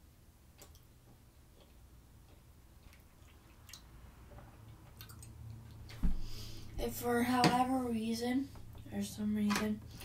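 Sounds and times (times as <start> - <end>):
faint chewing: 0.5 - 6.0
soft mouth clicks: 0.6 - 0.9.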